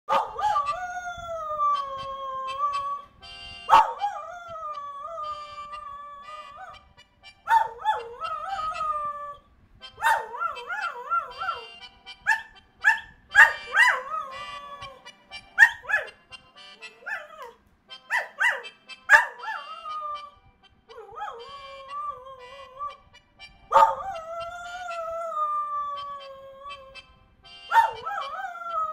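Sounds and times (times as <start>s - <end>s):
dog howling: 0.1s - 3.0s, 3.7s - 6.8s, 7.5s - 9.4s, 10.0s - 16.2s, 16.8s - 23.0s, 23.7s - 27.0s, 27.7s - 28.9s.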